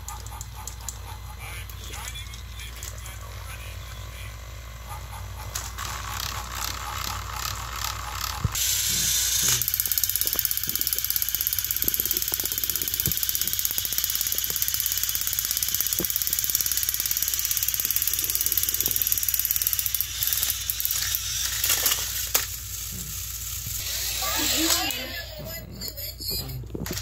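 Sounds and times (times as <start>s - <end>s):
toy train motors whirring: 0.0s - 27.0s
rapid even clicking: 9.6s - 21.2s.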